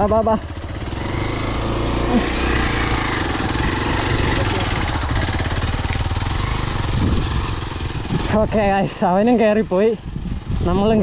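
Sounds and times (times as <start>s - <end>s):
motorcycle engine running hard: 0.0s - 11.0s.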